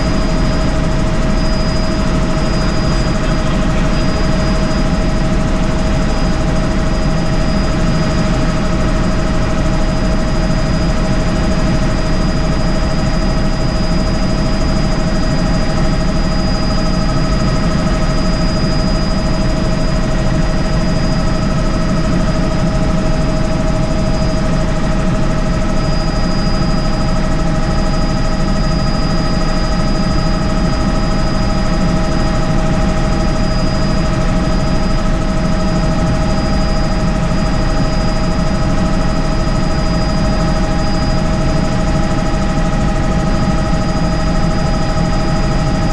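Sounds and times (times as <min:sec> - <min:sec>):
helicopter rotor and turbine noise: 0:00.0 - 0:45.9
high whine: 0:00.0 - 0:45.9.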